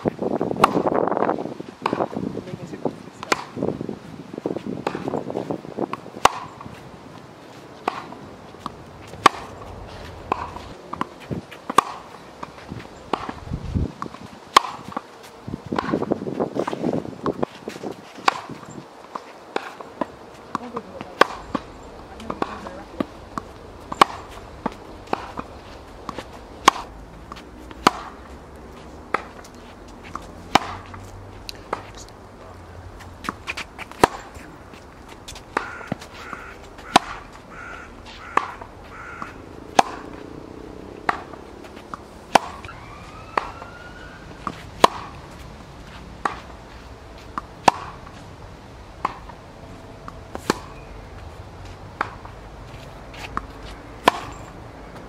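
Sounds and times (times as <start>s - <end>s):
tennis ball hit by rackets: 0.6s - 1.0s, 1.8s - 2.2s, 3.2s - 3.6s, 4.8s - 5.2s, 5.9s - 6.8s, 7.8s - 13.4s, 14.0s - 31.0s, 33.1s - 48.2s, 49.0s - 49.4s, 50.0s - 50.9s, 51.6s - 55.0s
ball bouncing on hard court: 18.2s - 28.2s, 35.3s - 40.3s, 44.4s - 45.2s.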